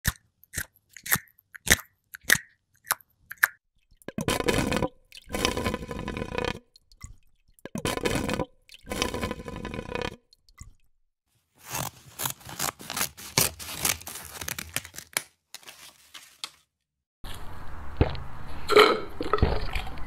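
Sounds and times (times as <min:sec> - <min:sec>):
wet scraping bursts: 0:04.0 - 0:10.8.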